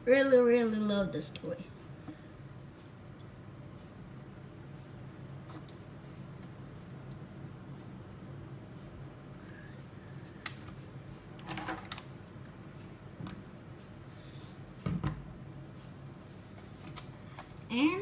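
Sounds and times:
faint high whine: 13.3 - 18.0.

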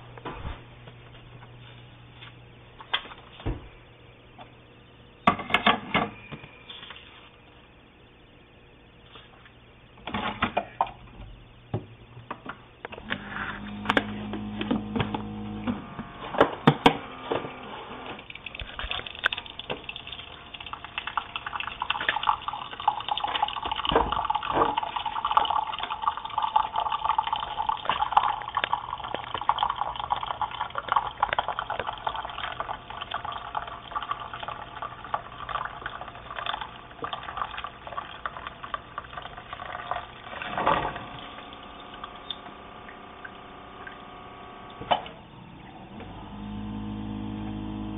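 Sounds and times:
coffee machine hum: 0.0 - 8.0, 8.6 - 47.9
coffee streaming and gurgling into mug: 18.2 - 44.6.

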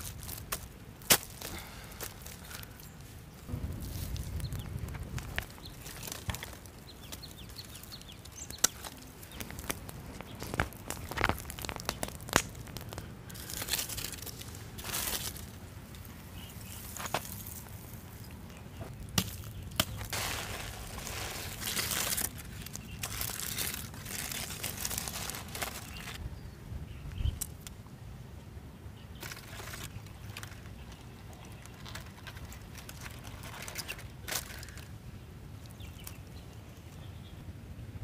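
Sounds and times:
crackling and crinkling: 0.0 - 26.2, 29.1 - 37.0
soil and charcoal scraping: 0.0 - 26.2, 29.2 - 34.9
sharp clicks and cracks: 4.1 - 14.5.

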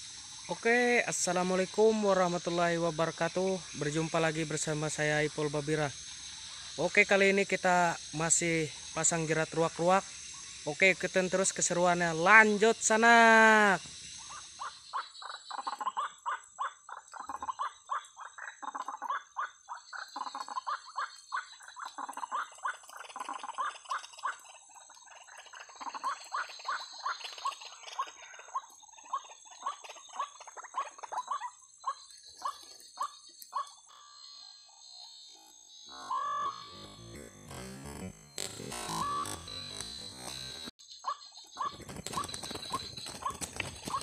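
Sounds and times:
steady high-pitched whine: 35.3 - 40.7
waterhens calling: 35.9 - 40.6, 41.6 - 44.0.

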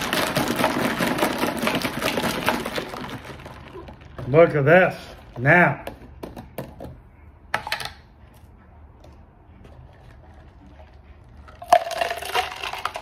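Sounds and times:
liquid splashing with ice rattling: 0.0 - 5.5, 11.5 - 13.0.

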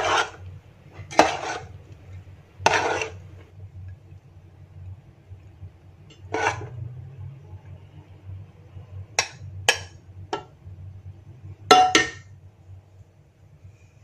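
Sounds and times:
metal spoon scraping metal pot: 0.0 - 1.8, 2.6 - 3.4, 6.1 - 6.9
low steady hum: 0.0 - 14.0.

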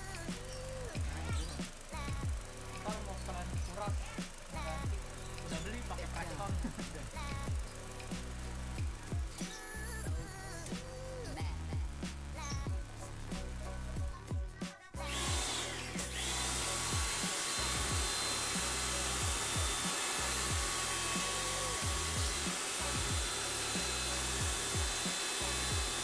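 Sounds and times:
pressure washer whining: 0.0 - 9.7, 15.0 - 26.0
background music with bass line: 0.0 - 26.0
water jet spraying: 15.1 - 26.0.

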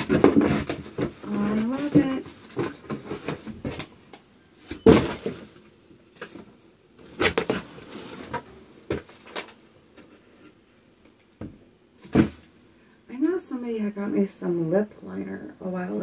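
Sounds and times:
packaging rustling and knocking: 0.0 - 4.1, 4.7 - 5.6, 6.2 - 9.6.

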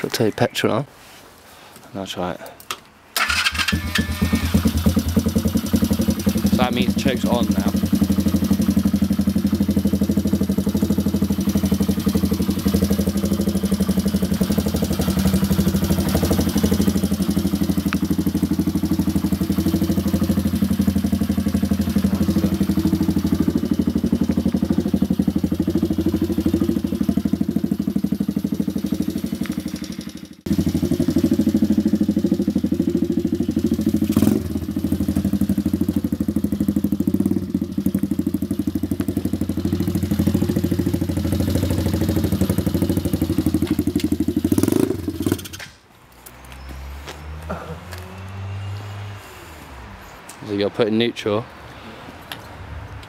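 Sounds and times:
small motorcycle engine idling: 3.2 - 45.6.

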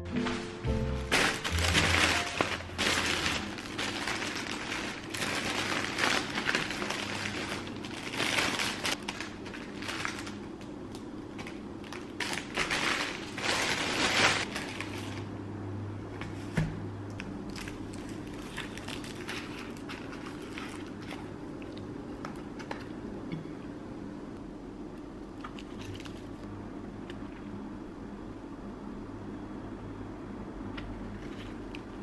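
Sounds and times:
plastic wrapper crinkling: 1.0 - 15.3, 17.4 - 22.9, 25.4 - 26.5.

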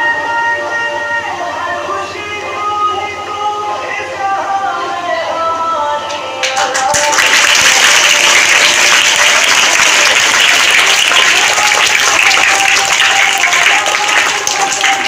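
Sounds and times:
audience applause: 6.4 - 15.0
dance music: 6.4 - 15.0.

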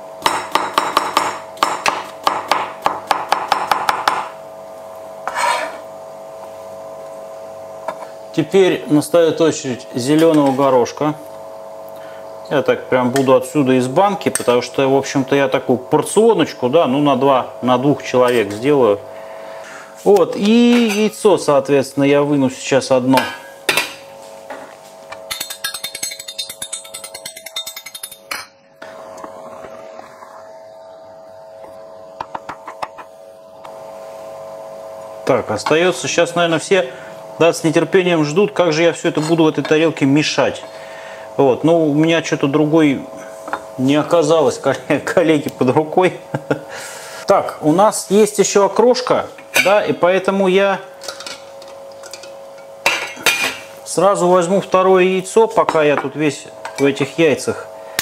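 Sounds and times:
knife scraping cutting board: 5.2 - 5.9.

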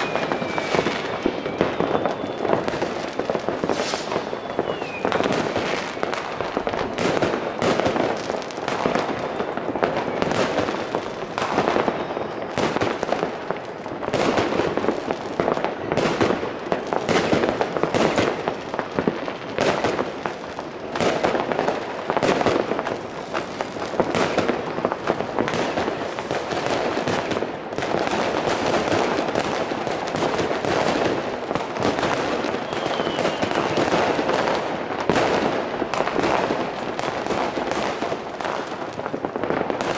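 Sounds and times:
rocket whistle: 0.0 - 6.4, 9.2 - 10.7, 11.4 - 13.0, 32.6 - 34.2
firecrackers banging and crackling: 0.0 - 39.9.

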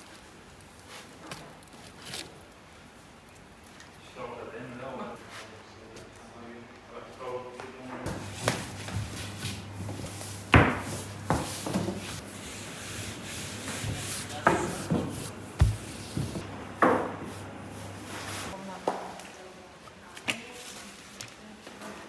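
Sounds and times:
rolling pin rubbing dough: 8.1 - 16.4
steady low hum: 8.1 - 18.6.

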